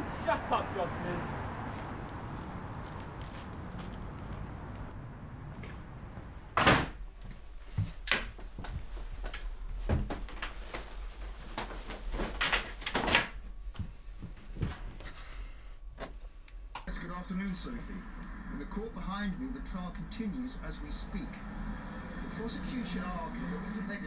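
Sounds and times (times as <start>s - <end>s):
door closing with a bang: 6.5s - 7.0s
jacket rustling: 7.2s - 15.2s.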